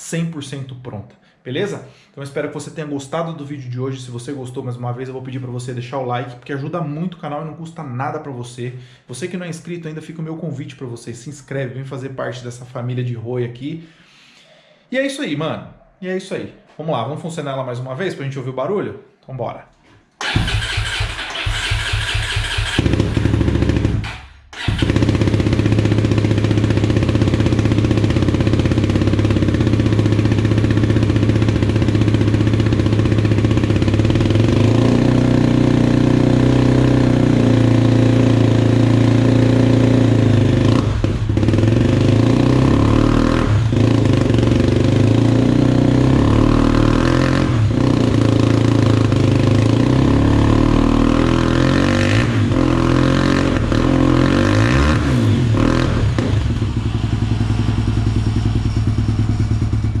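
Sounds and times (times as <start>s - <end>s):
motorcycle engine idling and revving: 20.2s - 60.0s.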